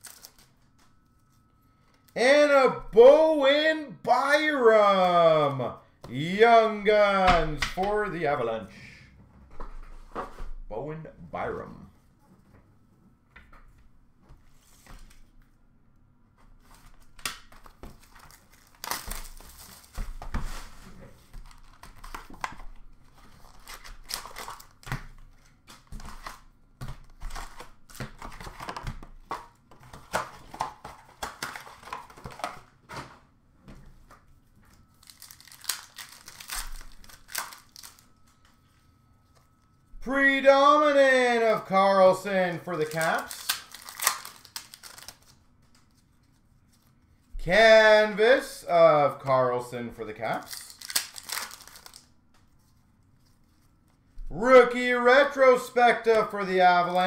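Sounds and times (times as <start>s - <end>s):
plastic wrappers crinkling and tearing: 0.0s - 1.4s, 16.7s - 32.8s, 34.7s - 38.6s, 42.6s - 47.3s, 50.4s - 54.0s.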